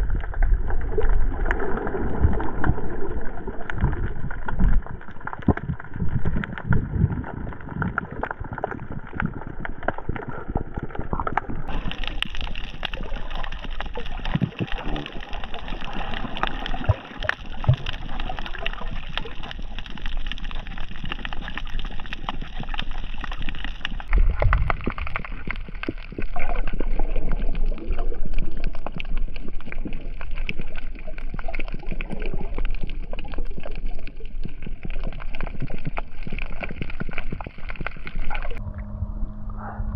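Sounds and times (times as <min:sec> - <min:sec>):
water sloshing and gurgling: 0:00.0 - 0:39.9
low rumble: 0:38.4 - 0:39.9.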